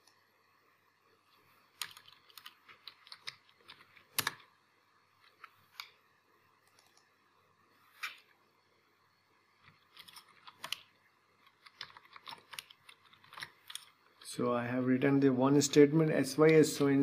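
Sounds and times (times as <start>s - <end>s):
computer keyboard typing: 1.8s - 4.4s, 9.9s - 13.9s.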